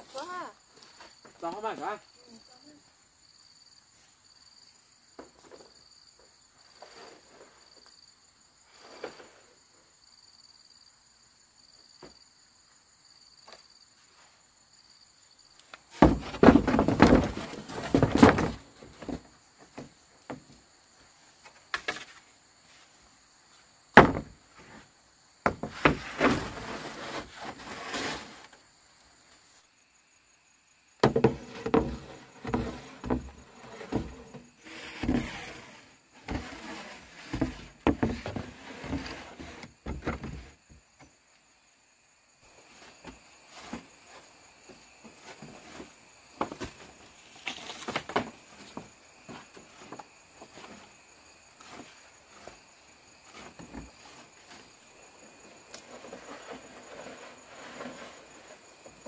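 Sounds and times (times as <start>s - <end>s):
bamboo scraping and creaking: 6.6s - 8.0s, 8.7s - 9.7s, 15.6s - 20.6s, 21.2s - 23.0s, 23.9s - 28.7s, 31.0s - 41.2s, 42.5s - 59.0s.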